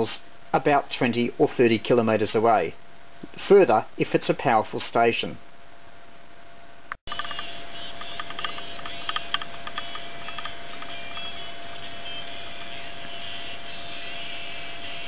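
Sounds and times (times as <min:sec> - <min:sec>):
steady hiss: 0:00.0 - 0:15.0
clicks and crackles: 0:06.9 - 0:11.9.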